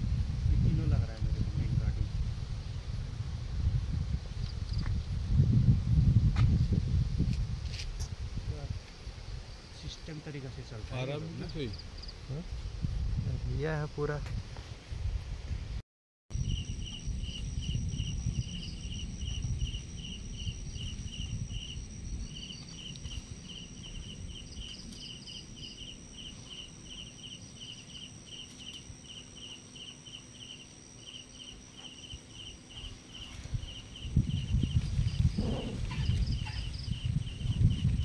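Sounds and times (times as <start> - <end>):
cricket-like chirping: 3.7 - 6.5, 7.2 - 13.8, 16.3 - 38.0
high-pitched insect drone: 16.3 - 38.0
low background rumble: 16.4 - 28.1.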